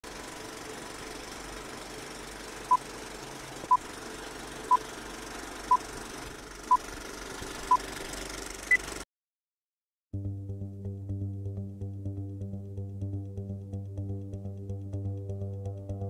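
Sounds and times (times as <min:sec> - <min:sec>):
film projector whirring: 0:00.1 - 0:09.0.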